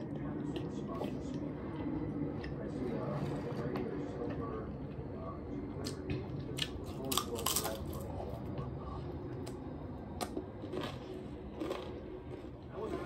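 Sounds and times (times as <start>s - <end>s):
chewing crunchy tortilla chips: 5.8s - 8.4s, 10.2s - 13.0s.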